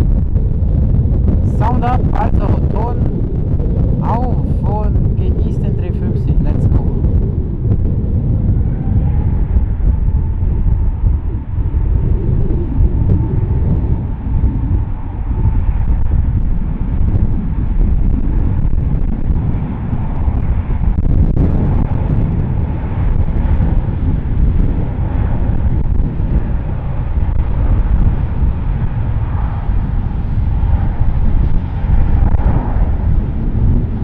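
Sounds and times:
jet engine whine: 0.0s - 34.0s
jet engines rumbling: 0.0s - 34.0s.

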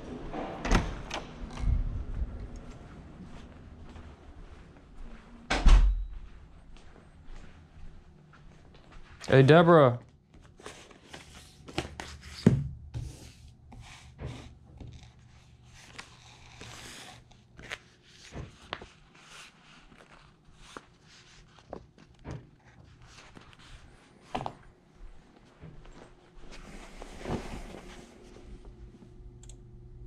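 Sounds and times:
paper rustling: 10.4s - 12.5s, 14.8s - 24.5s.

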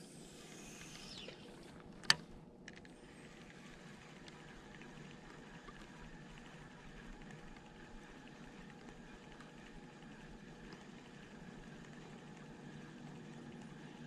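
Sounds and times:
fishing line running off reel: 0.0s - 2.2s
sharp reel click: 0.0s - 2.2s.

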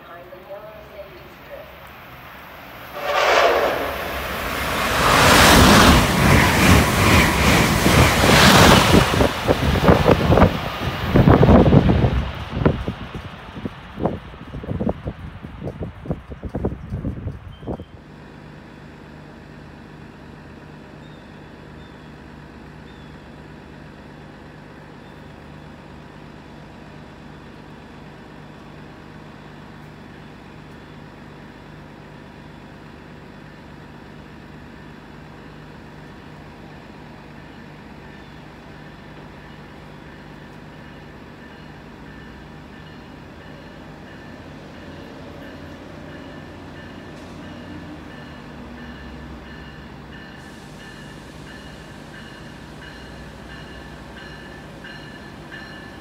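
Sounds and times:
distant train rumbling: 0.0s - 56.0s.

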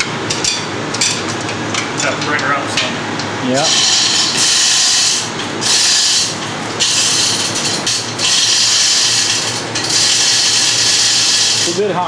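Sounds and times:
hoist hissing run: 3.6s - 12.0s.

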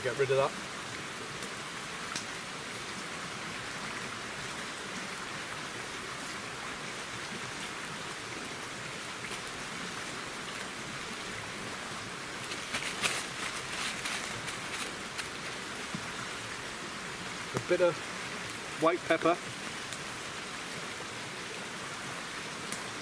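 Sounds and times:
running water in stream: 0.0s - 23.0s
plastic bag crinkling: 12.5s - 15.5s.

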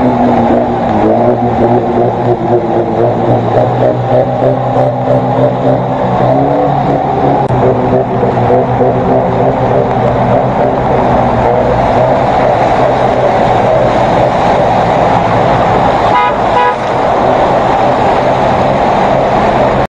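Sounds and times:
churned water washing: 0.0s - 19.9s
engine running: 0.0s - 19.9s
car horn toot: 16.1s - 16.9s.

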